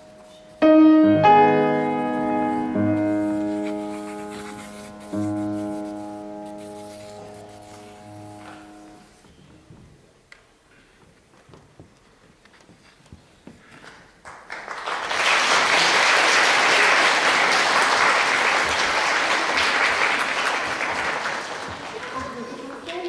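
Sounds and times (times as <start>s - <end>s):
audience applause: 14.2s - 23.0s.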